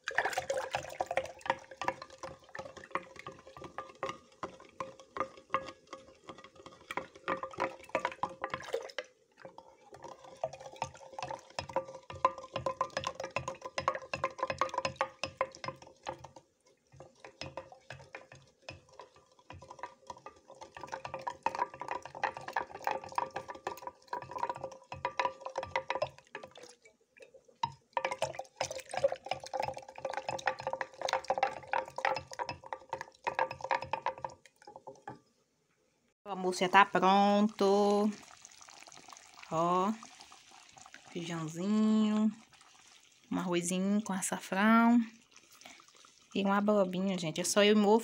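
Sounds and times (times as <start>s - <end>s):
liquid swishing: 0.0s - 35.2s, 37.6s - 43.7s, 45.1s - 46.5s
spoon rattling in glass pitcher: 0.0s - 35.2s.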